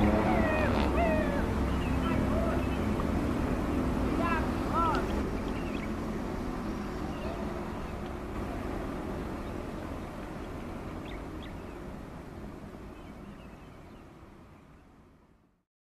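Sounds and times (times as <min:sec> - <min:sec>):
bird chirps: 0:00.0 - 0:03.0, 0:04.8 - 0:06.0.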